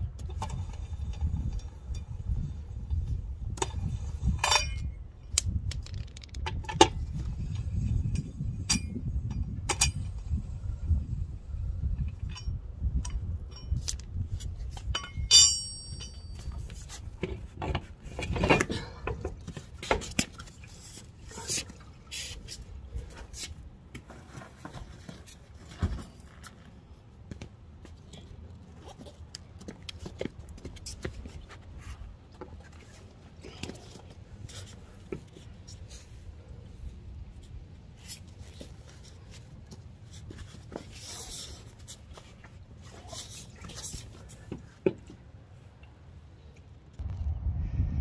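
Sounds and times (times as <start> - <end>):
wheel hardware knocks and scrapes: 0.2 - 5.0, 12.0 - 26.7
lug wrench clinking and scraping: 0.2 - 10.3, 12.0 - 21.6
ringing metallic strike: 15.0 - 16.6.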